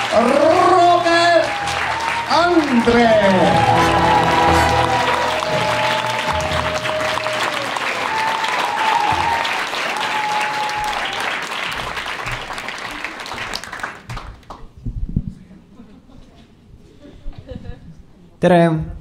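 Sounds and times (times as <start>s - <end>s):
audience applauding: 0.0s - 14.7s.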